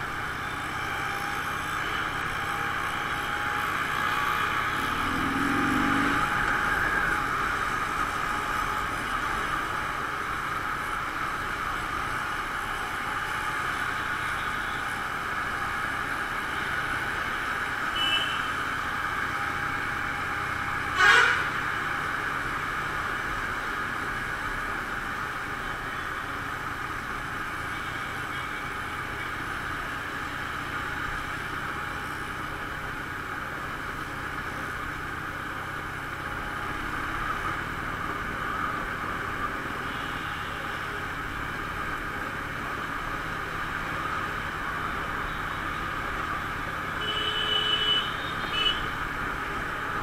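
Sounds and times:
wind and road noise: 0:00.0 - 0:50.0
motorcycle engine running: 0:02.0 - 0:08.8.

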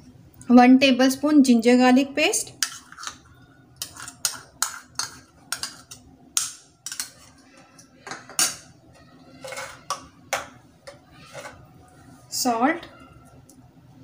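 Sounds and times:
metal spoon clinking against bowls: 0:02.6 - 0:06.0, 0:09.4 - 0:11.6.

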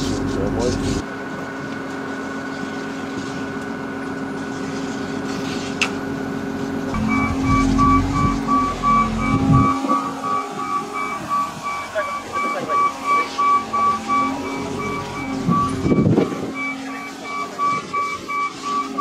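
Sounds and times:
wheel loader diesel engine: 0:00.0 - 0:04.5, 0:06.0 - 0:19.0
reversing beeper: 0:07.0 - 0:19.0.

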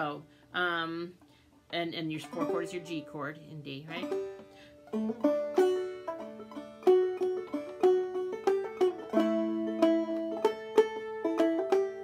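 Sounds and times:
banjo plucking and strumming: 0:01.7 - 0:12.0.

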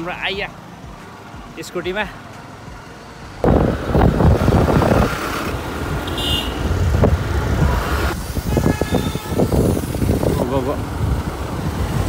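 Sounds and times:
scooter road noise: 0:02.2 - 0:12.0
wind buffeting microphone: 0:03.4 - 0:12.0.

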